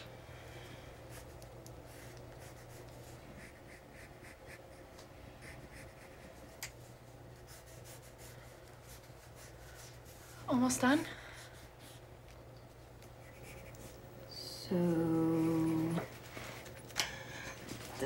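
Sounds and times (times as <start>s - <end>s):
low steady hum: 0.0s - 18.0s
pencil scratching on paper: 1.1s - 4.7s, 5.4s - 6.6s, 7.3s - 10.7s, 13.2s - 14.0s, 15.0s - 16.8s.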